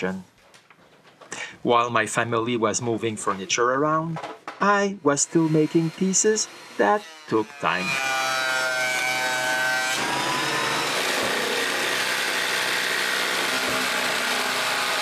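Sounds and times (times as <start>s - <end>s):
power tool cutting wood: 4.6s - 15.0s.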